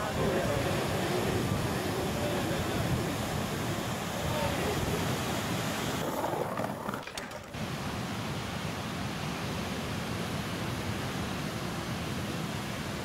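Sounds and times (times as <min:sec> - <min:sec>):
surf breaking: 0:00.0 - 0:07.6
wind: 0:00.0 - 0:13.0.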